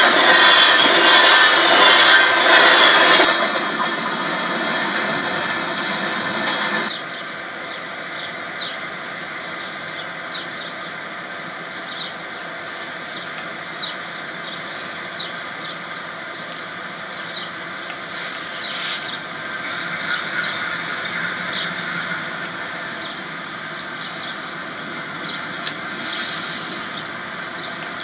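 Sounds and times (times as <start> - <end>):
diesel locomotives idling: 0.0 - 28.0
freight train passing: 0.0 - 28.0.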